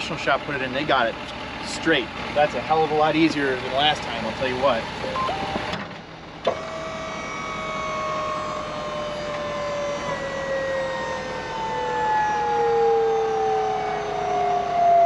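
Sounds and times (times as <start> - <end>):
hydraulic pump whining: 4.8 - 15.0.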